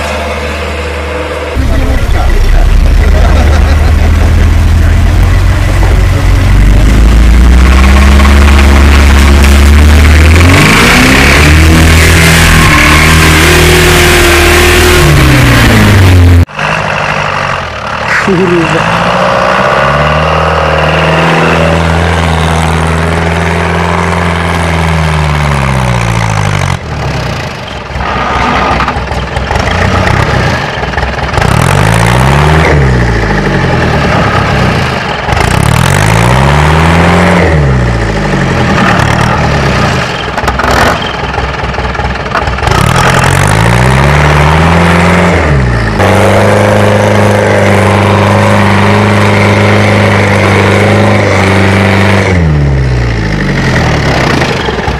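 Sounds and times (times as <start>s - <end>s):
off-road vehicle engine revving: 0.0s - 41.3s, 42.3s - 54.9s.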